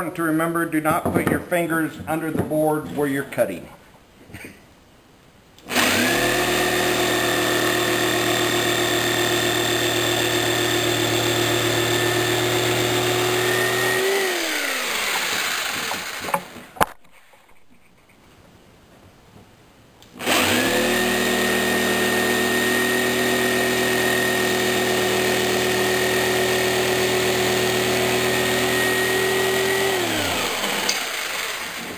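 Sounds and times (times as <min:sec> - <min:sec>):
jigsaw cutting wood: 0:05.6 - 0:16.7, 0:20.1 - 0:31.9.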